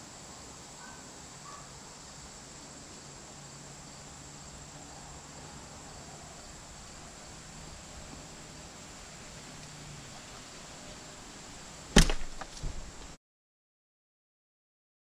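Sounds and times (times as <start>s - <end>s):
high-pitched insect chorus: 0.0s - 13.2s.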